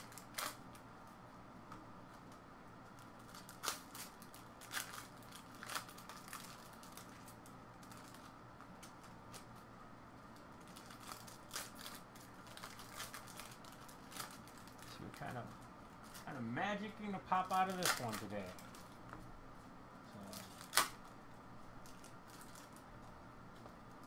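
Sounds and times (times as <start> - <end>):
wrapper snaps: 0.0 - 0.8, 3.0 - 9.5, 17.5 - 18.9, 20.3 - 21.1
card pack wrappers crinkling: 3.0 - 9.5, 10.4 - 16.3, 17.2 - 19.0, 20.2 - 21.1, 21.8 - 22.9.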